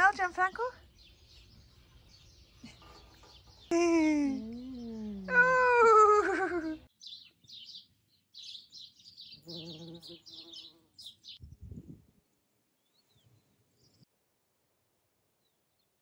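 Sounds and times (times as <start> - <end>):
small birds chirping: 0.0 - 14.1
bumblebee buzzing: 9.4 - 11.4.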